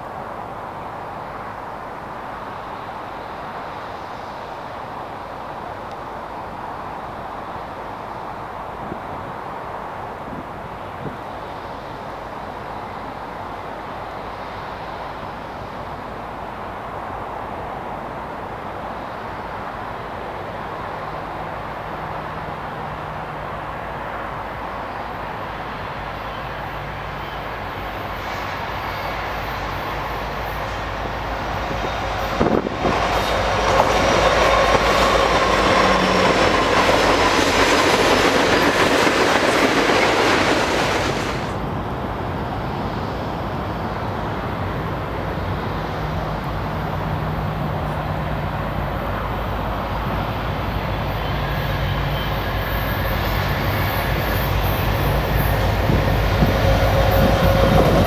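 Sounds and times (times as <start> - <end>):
diesel locomotive drone: 0.0 - 58.0
train rolling rumble: 0.0 - 58.0
wheels on rails squealing: 26.3 - 41.6, 50.3 - 58.0.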